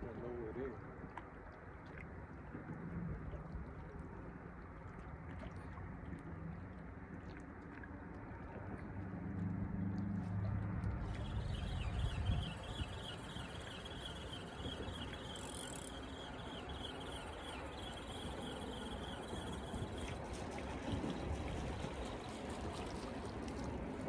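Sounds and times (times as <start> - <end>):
low hum: 2.6 - 24.0
fishing reel whirring: 11.1 - 22.8.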